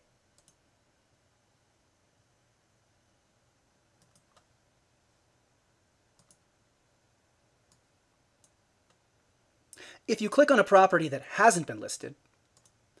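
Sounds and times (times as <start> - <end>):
faint computer mouse clicks: 0.4 - 0.6, 4.0 - 4.5, 6.2 - 6.4, 12.2 - 12.8.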